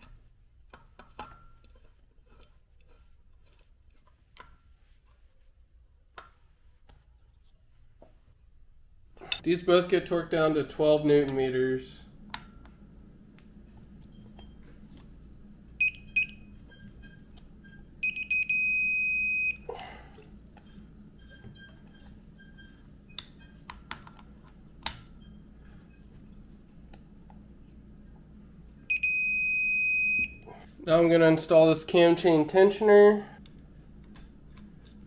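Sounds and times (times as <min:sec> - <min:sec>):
torque wrench beeping: 0:15.8 - 0:16.8, 0:18.0 - 0:19.7, 0:28.9 - 0:30.4.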